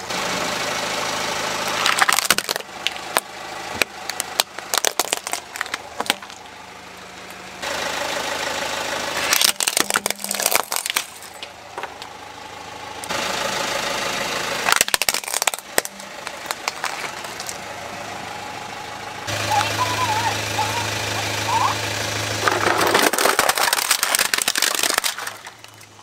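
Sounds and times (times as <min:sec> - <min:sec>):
car engine at low revs: 0:00.0 - 0:26.0
plastic toys cracking under tyre: 0:01.8 - 0:06.4, 0:09.3 - 0:12.1, 0:14.7 - 0:17.6, 0:22.4 - 0:26.0.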